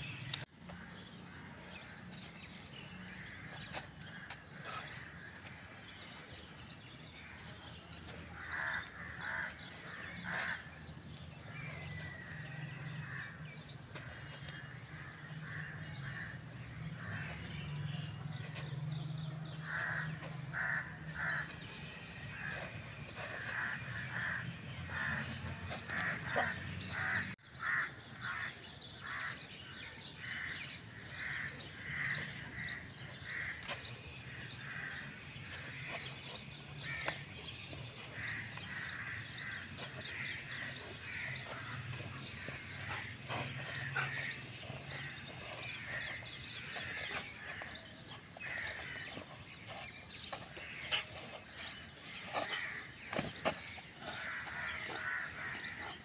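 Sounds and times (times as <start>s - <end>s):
birds calling: 0.0s - 56.0s.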